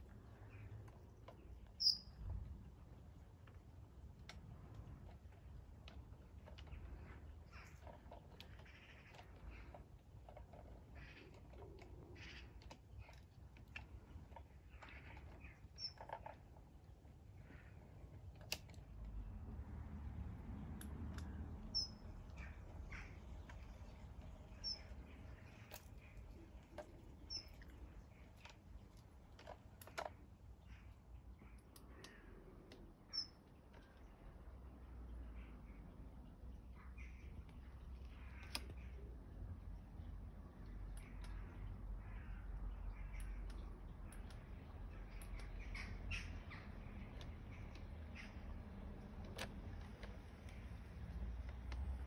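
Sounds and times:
birds calling: 0.0 - 2.9, 6.2 - 16.4, 21.6 - 34.3, 35.1 - 51.3
high bird chirp: 1.8 - 2.2, 21.7 - 23.1.

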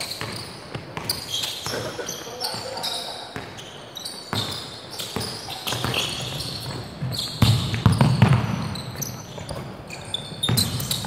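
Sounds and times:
sneakers squeaking on court: 0.0 - 11.0
basketball bouncing on hardwood: 5.2 - 8.8.

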